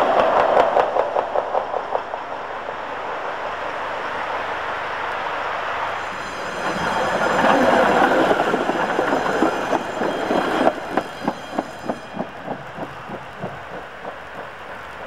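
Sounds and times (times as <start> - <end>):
tram wheels rumbling on rails: 0.0 - 15.0
wheels clacking over rail joints: 6.0 - 15.0.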